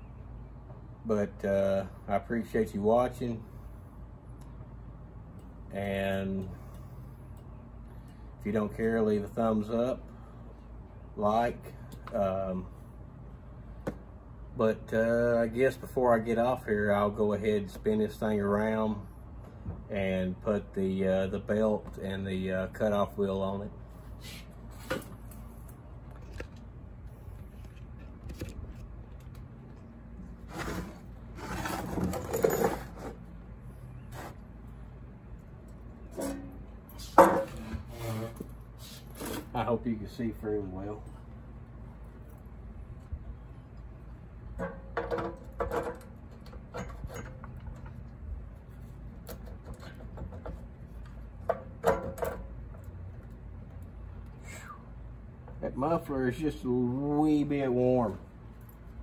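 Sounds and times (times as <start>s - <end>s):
saw scraping and knocking on wood: 30.4s - 33.2s
metal parts clicking and clanking: 31.5s - 33.1s, 44.6s - 48.1s.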